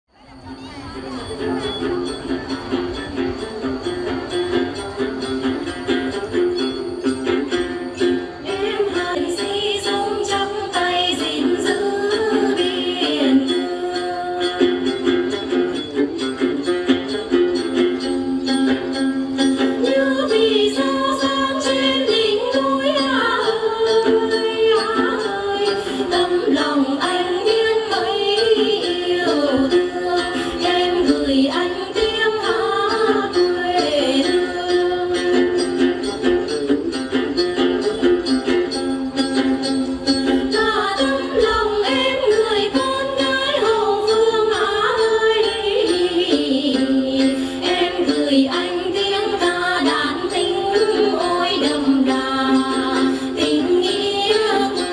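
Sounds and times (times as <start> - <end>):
gourd lutes playing: 0.1 - 54.9
woman singing folk song: 7.3 - 15.7, 19.5 - 36.4, 39.4 - 54.9.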